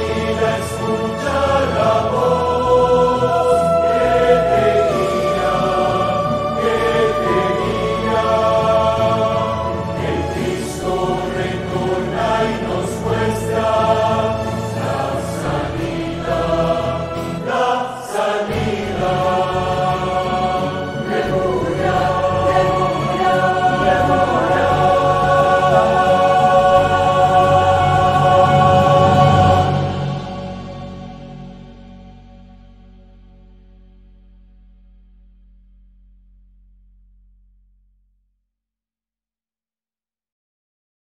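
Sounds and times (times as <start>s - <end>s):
choir singing slow song: 0.0s - 32.2s.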